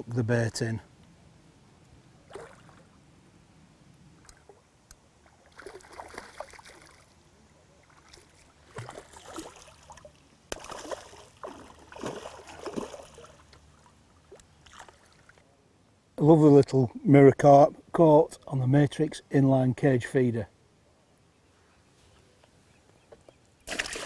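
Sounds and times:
fish splashing at water surface: 5.5s - 7.0s, 8.0s - 13.4s, 23.7s - 24.0s.

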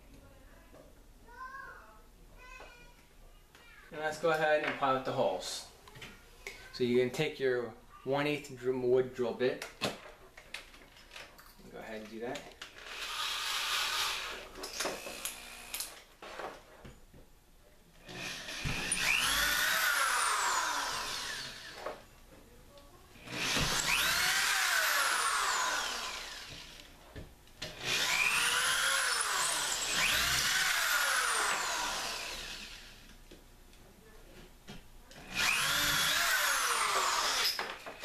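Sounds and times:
electric drill whining: 12.8s - 16.0s, 18.1s - 21.9s, 23.2s - 26.9s, 27.7s - 33.0s, 35.2s - 37.8s.

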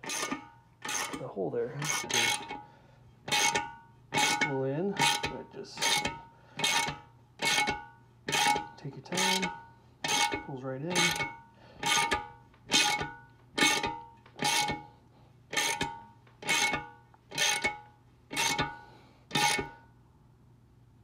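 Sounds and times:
wrench tightening nut metallic creak: 0.0s - 2.6s, 3.3s - 14.9s, 15.5s - 19.8s.

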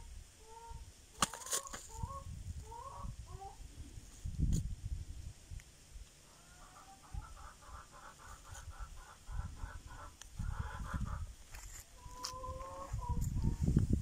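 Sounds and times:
chicken clucking: 0.5s - 3.6s, 6.3s - 11.3s, 12.0s - 13.7s
rustling: 1.2s - 2.0s.

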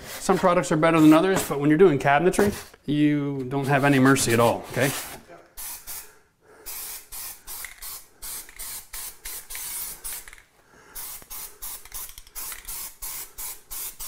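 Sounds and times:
aerosol can spraying: 5.6s - 10.4s, 11.0s - 14.0s.

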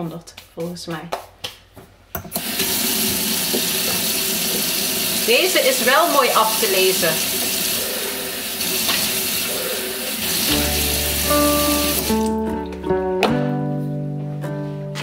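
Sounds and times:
tap water running into a cup: 2.4s - 12.3s
background music with held notes: 10.2s - 15.0s.

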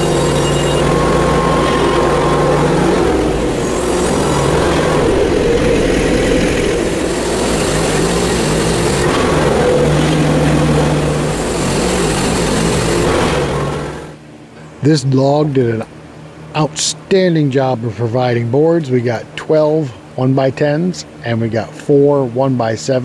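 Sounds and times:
sawmill engine running: 0.0s - 14.2s.

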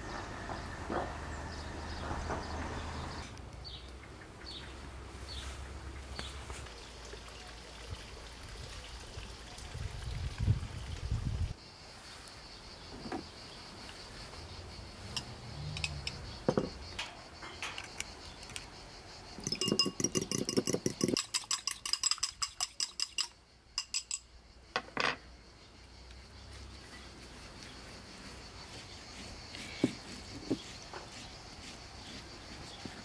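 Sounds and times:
fork beating egg in bowl: 19.4s - 24.2s.

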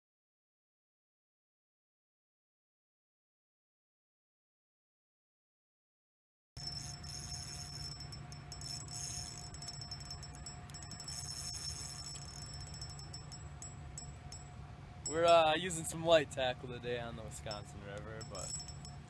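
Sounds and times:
reel drag clicking: 6.6s - 14.4s, 17.5s - 18.9s.

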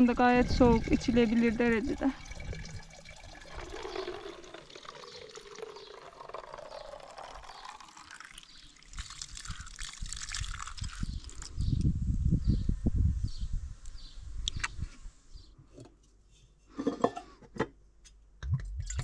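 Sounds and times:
water running into container: 0.0s - 11.6s.

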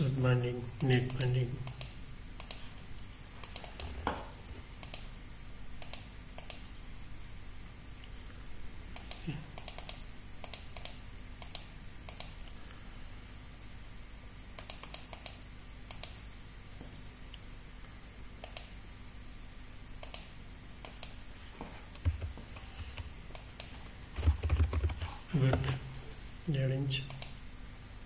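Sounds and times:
faint steady hum: 0.0s - 28.0s
keyboard and mouse clicks: 0.8s - 2.6s, 3.4s - 4.0s, 4.8s - 5.1s, 5.8s - 6.6s, 9.0s - 12.4s, 14.6s - 16.2s, 18.4s - 18.7s, 20.0s - 21.2s, 22.0s - 25.8s.

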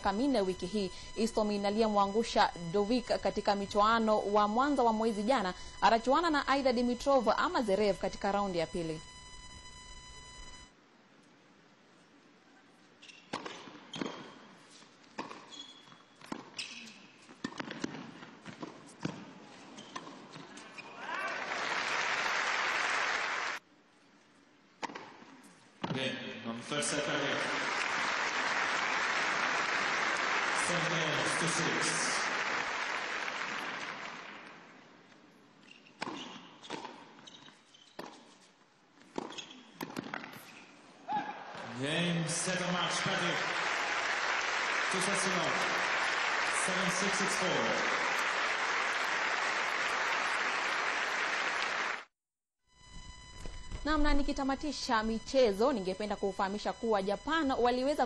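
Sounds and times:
ball bouncing on hard court: 13.3s - 14.4s, 15.2s - 20.6s, 39.1s - 40.5s
racket striking tennis ball: 13.3s - 14.4s, 17.4s - 19.3s, 36.0s - 37.1s, 39.1s - 40.4s
crowd applause: 21.0s - 23.6s, 26.8s - 34.6s, 42.4s - 52.1s.

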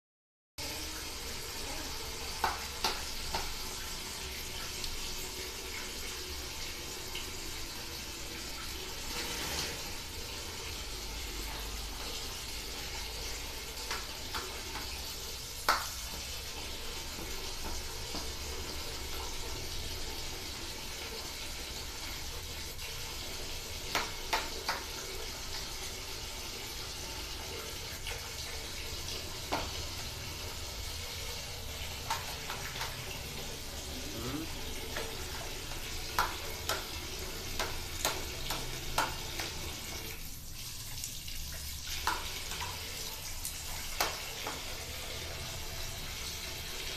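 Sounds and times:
tap running into bucket: 2.2s - 33.7s, 34.7s - 46.9s.

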